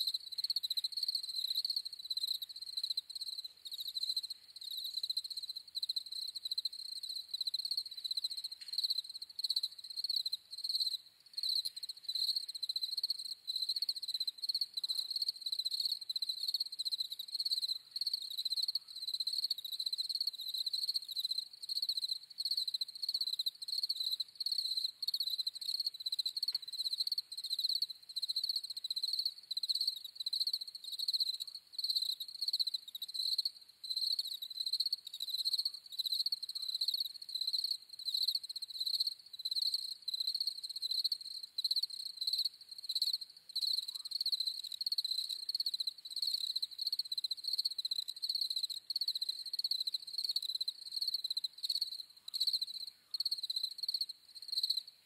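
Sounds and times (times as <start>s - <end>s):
crickets chirping: 0.0s - 54.9s.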